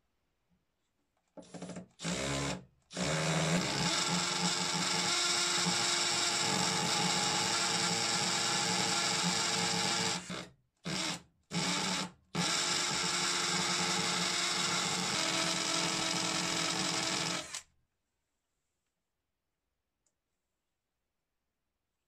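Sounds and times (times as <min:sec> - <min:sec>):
drill boring into concrete: 0:01.4 - 0:17.7.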